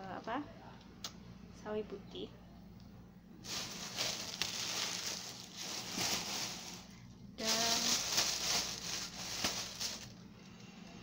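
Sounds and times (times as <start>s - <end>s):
shopping bag rustling: 3.4s - 10.2s.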